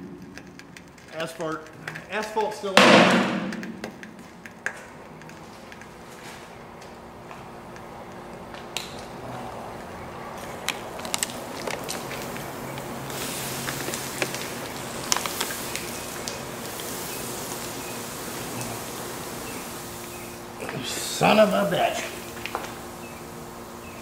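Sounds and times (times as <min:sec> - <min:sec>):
asphalt crackling and popping: 0:00.0 - 0:24.0
plasma cutter hissing: 0:13.0 - 0:24.0.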